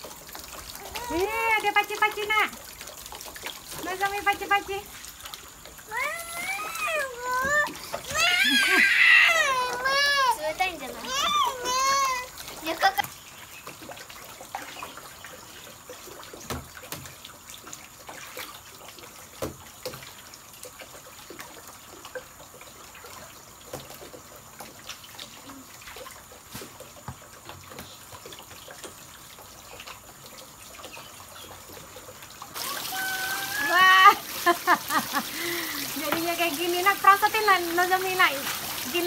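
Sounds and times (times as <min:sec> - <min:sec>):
water drips and taps: 0:00.0 - 0:39.0
water spraying and hissing: 0:00.0 - 0:39.0.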